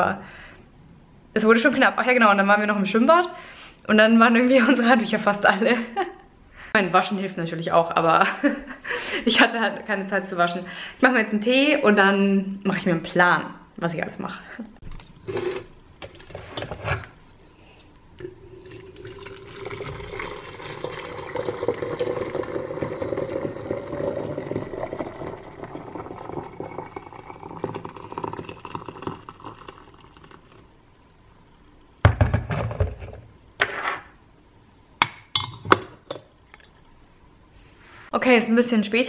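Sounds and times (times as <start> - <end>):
kettle bubbling and hissing: 17.4 - 32.0.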